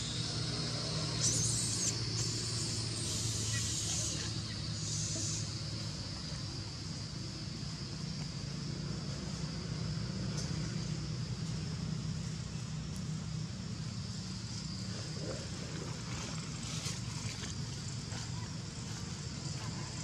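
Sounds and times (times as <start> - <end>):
high-pitched hiss: 0.0 - 15.4
low constant rumble: 0.0 - 20.0.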